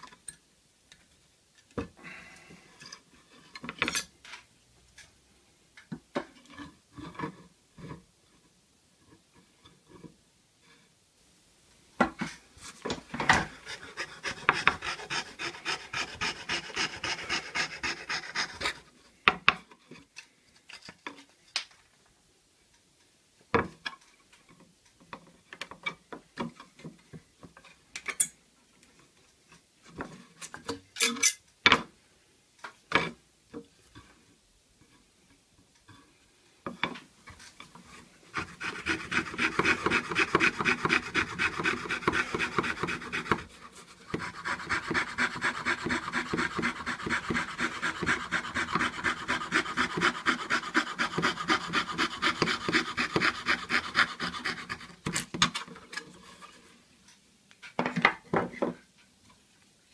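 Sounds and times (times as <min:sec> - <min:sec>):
fret saw cutting wood: 0:13.6 - 0:18.8, 0:38.4 - 0:43.5, 0:44.1 - 0:54.9.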